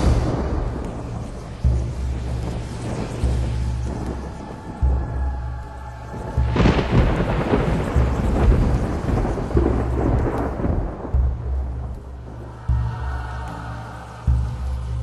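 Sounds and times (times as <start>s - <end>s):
low pulsing bass drone: 0.0s - 15.0s
thunderclap rumbling: 0.0s - 15.0s.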